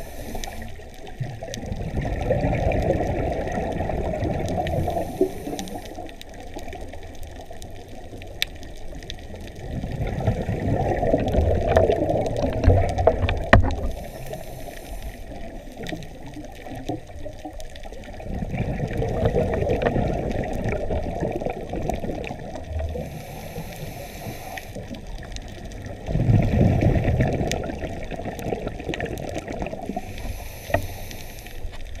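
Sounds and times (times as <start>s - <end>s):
regulator inhalation hiss: 0.0s - 0.8s, 4.7s - 6.1s, 13.8s - 15.6s, 23.0s - 25.0s, 29.9s - 32.0s
exhaled bubbles underwater: 0.0s - 32.0s
faint clicks and crackles: 0.0s - 32.0s.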